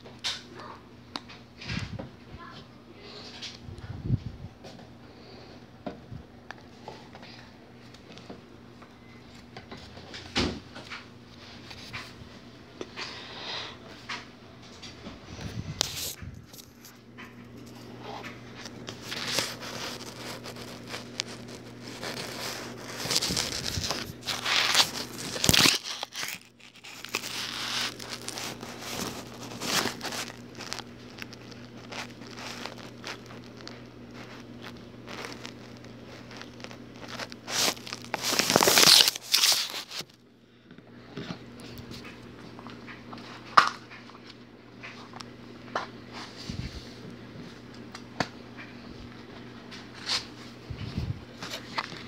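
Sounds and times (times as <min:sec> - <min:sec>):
rustling and crinkling: 0:13.9 - 0:40.2, 0:41.0 - 0:52.0.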